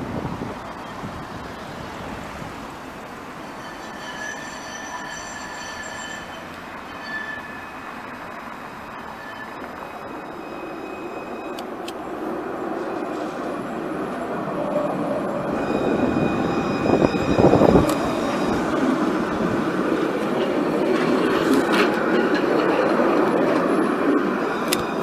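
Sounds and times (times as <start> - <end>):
tram running on rails: 0.0 - 25.0
wheels squealing on curved track: 3.3 - 11.8, 14.6 - 25.0.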